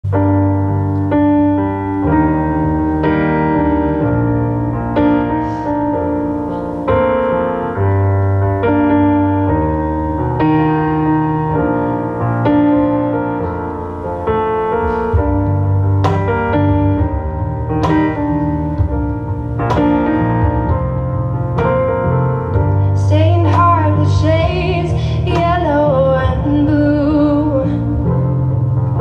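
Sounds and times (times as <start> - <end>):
electric piano playing slow chords: 0.0 - 29.0
held low bass notes: 0.0 - 29.0.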